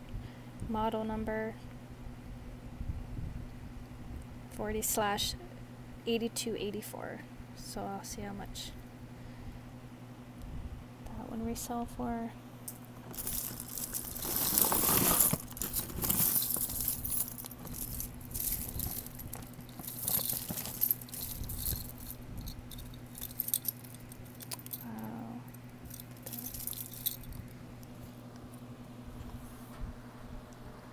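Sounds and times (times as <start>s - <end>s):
jewelry clinking and rattling: 12.7s - 27.5s.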